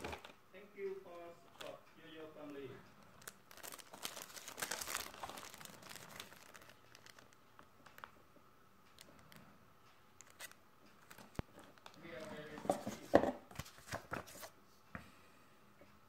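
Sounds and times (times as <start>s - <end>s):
plastic bags crinkling: 3.0s - 8.1s, 10.2s - 14.4s.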